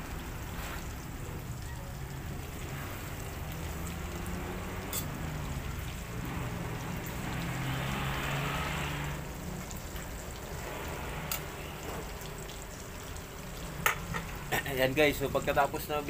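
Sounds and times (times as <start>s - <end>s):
meat sizzling in hot oil: 0.0s - 16.0s
metal utensil clinking on pan: 4.9s - 5.2s.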